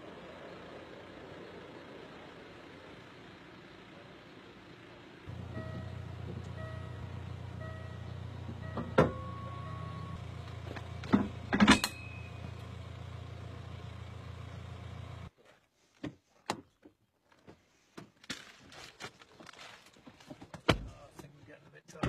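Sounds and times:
car engine running: 0:00.0 - 0:15.3
clunks: 0:05.3 - 0:12.8.

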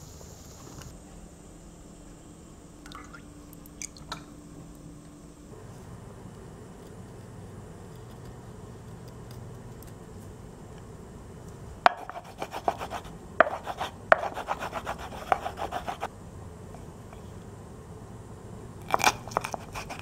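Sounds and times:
pestle knocking in mortar: 0:11.9 - 0:14.5
pestle grinding in mortar: 0:11.9 - 0:16.1, 0:18.8 - 0:20.0.

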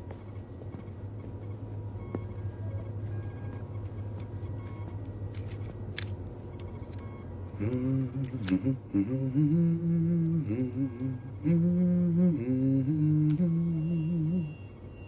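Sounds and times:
faint electronic bleeps: 0:00.0 - 0:05.7, 0:06.4 - 0:08.4, 0:10.1 - 0:12.5, 0:13.2 - 0:15.0
low background hum: 0:00.0 - 0:15.0
man humming: 0:07.6 - 0:14.6.

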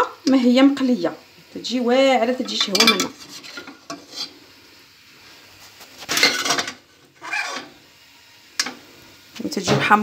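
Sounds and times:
metal spoon scraping a pot: 0:02.4 - 0:04.4, 0:05.8 - 0:07.8.

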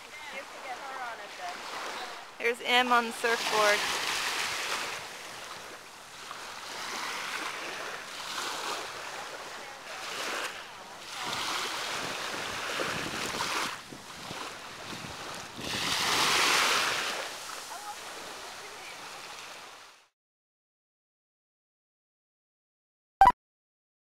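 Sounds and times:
small waves washing on shore: 0:00.0 - 0:20.1
wind on microphone: 0:11.2 - 0:17.4.

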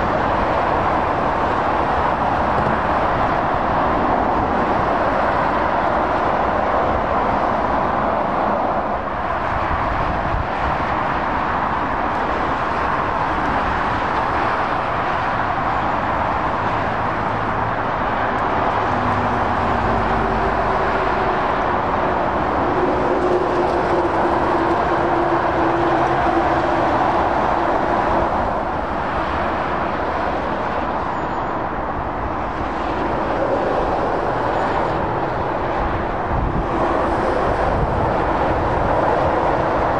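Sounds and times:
motorway traffic roar: 0:00.0 - 0:39.9
truck engine drone: 0:11.8 - 0:30.9.

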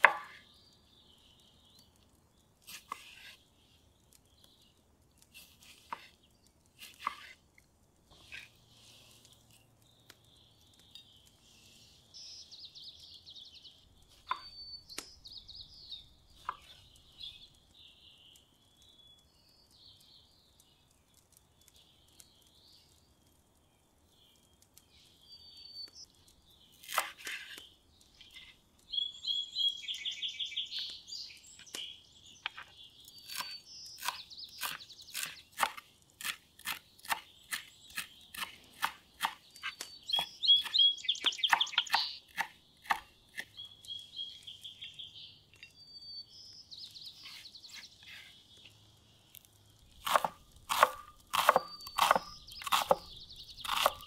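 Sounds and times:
knife striking wooden cutting board: 0:00.0 - 0:00.4, 0:50.0 - 0:53.0
small birds chirping: 0:00.0 - 0:54.0.

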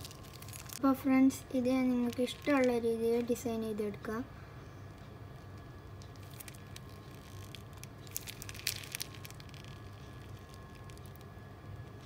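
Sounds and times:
plastic piping bag crinkling: 0:00.0 - 0:03.9, 0:06.0 - 0:11.4
low steady hum: 0:00.0 - 0:12.0.

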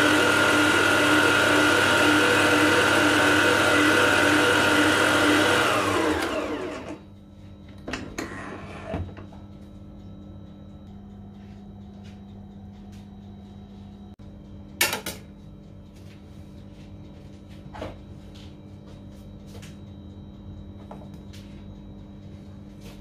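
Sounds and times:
steady low hum: 0:06.5 - 0:23.0.

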